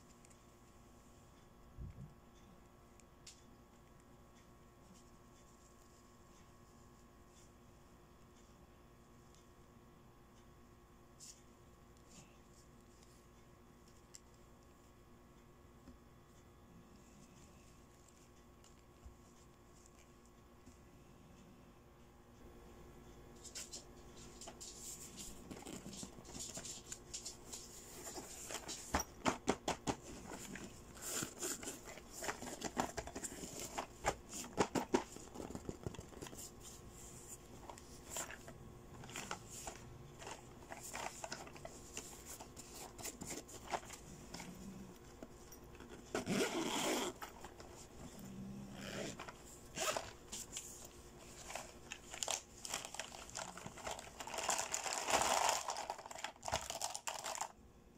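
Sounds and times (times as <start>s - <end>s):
fingers tapping and scraping bag: 45.7s - 47.6s
zipper unzipping: 46.0s - 47.3s, 48.3s - 50.2s.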